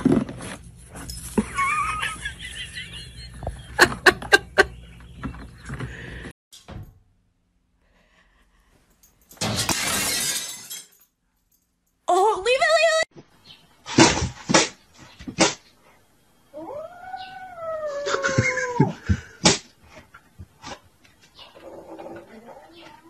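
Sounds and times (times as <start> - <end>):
mirror crashing and shattering: 9.3 - 11.0.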